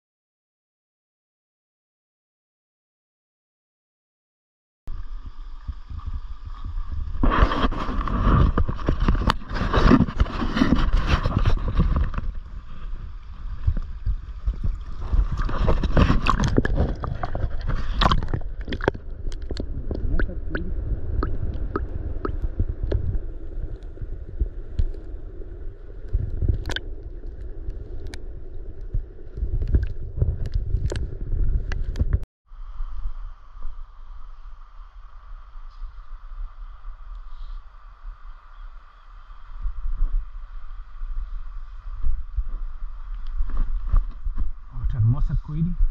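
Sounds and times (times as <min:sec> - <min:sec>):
water sloshing and gurgling: 0:04.9 - 0:32.2
wind buffeting microphone: 0:04.9 - 0:34.0.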